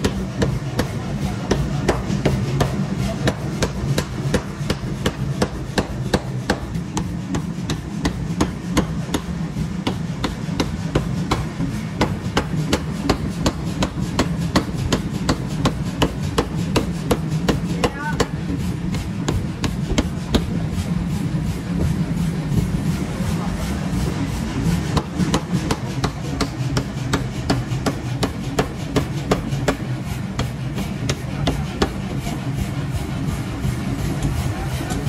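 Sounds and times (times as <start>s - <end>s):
machine humming: 0.0s - 35.0s
power hammer pounding steel: 0.0s - 35.0s.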